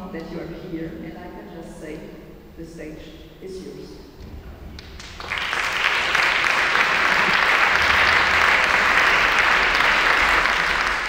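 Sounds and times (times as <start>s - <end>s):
audience applause: 4.8s - 11.0s.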